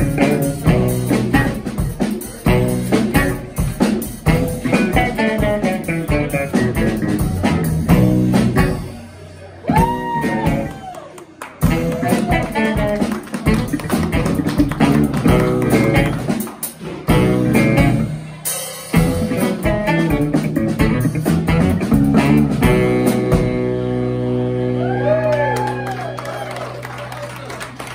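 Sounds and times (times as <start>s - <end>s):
electric bass guitar: 0.0s - 11.0s, 11.6s - 27.9s
drum kit: 0.0s - 26.9s
saxophone: 11.6s - 18.3s, 18.9s - 26.1s.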